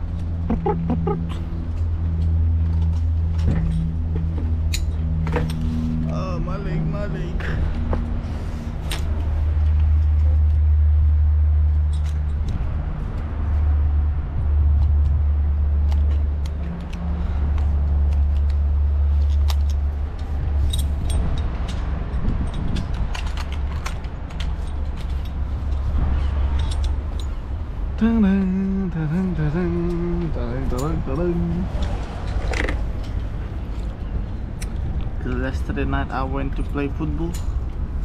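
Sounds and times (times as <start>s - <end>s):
wind buffeting microphone: 20.3s - 24.3s.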